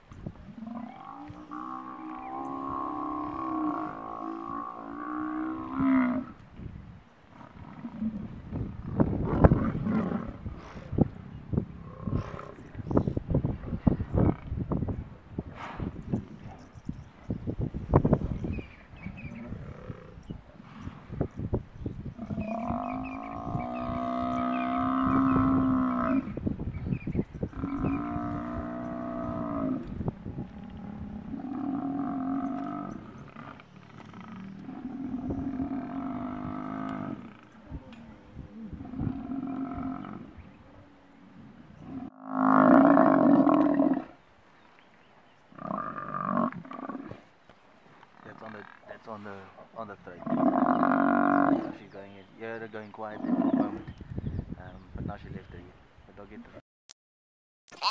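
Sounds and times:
buffalo bellowing: 22.2 - 26.3.

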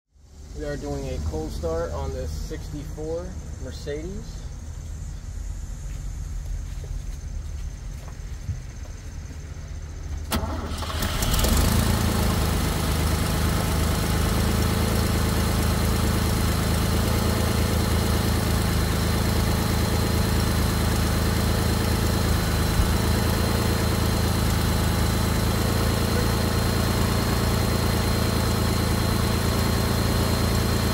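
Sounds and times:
car engine starting and idling: 9.2 - 30.9.

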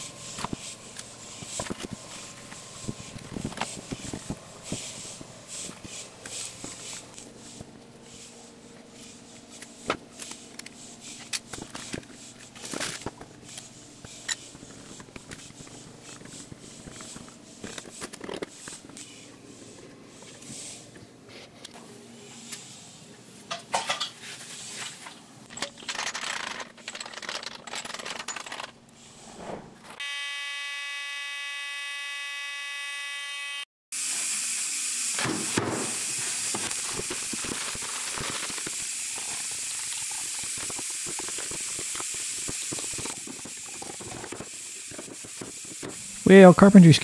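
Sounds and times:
compressed air hissing: 0.0 - 9.8.

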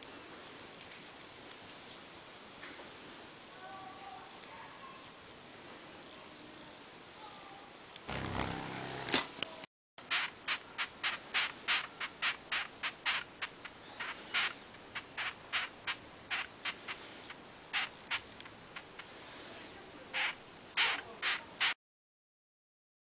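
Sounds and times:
beetle rasping chirps: 10.1 - 21.8.

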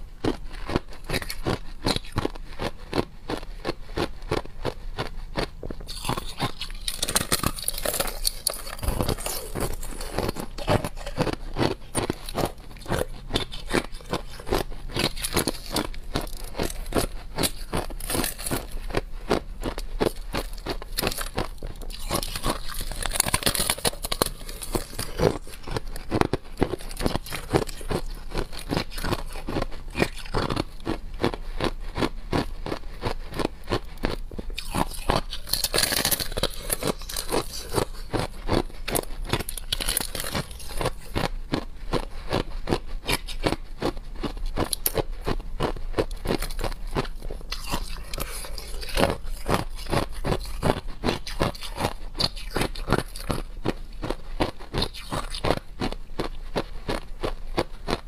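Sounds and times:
ice being chewed crunching: 0.0 - 58.0.

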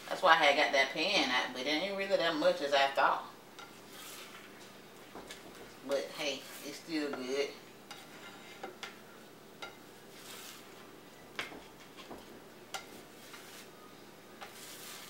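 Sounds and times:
spatula scraping a skillet: 3.5 - 15.0.

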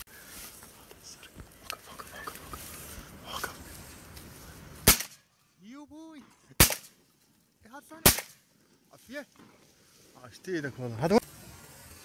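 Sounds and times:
shotgun shots: 4.8 - 5.2, 6.6 - 6.9, 8.0 - 8.4.

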